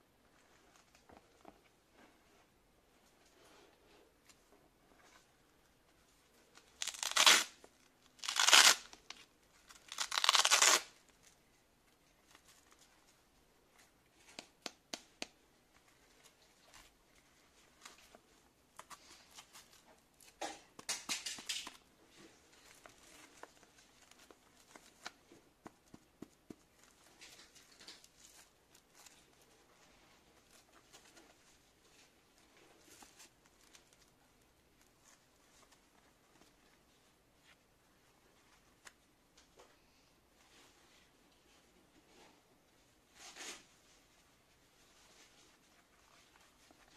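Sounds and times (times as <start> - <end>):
glove rustling and clicking: 6.6 - 11.4
velcro strap ripping open: 6.8 - 11.0.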